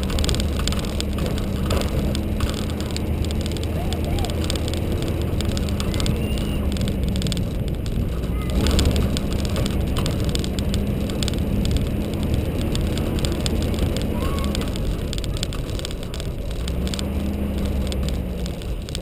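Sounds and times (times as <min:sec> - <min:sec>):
car engine drone: 0:00.0 - 0:19.0
tyre and wind noise: 0:00.0 - 0:19.0.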